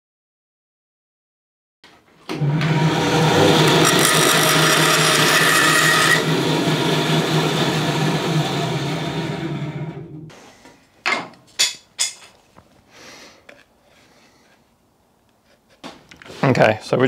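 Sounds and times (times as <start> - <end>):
bandsaw motor hum: 2.3 - 10.3.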